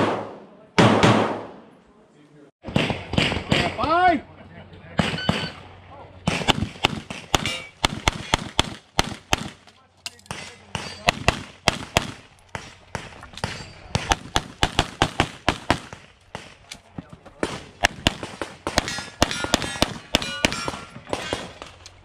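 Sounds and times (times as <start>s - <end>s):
rapid pistol fire: 0.0s - 1.6s, 6.3s - 9.6s, 10.3s - 13.1s, 14.0s - 16.6s
steel targets clanging: 13.4s - 14.0s, 18.8s - 21.8s.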